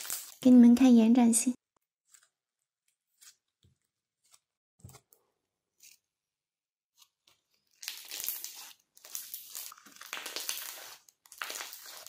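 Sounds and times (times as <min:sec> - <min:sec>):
slime crinkly crackling: 0:00.0 - 0:00.5, 0:07.7 - 0:12.0.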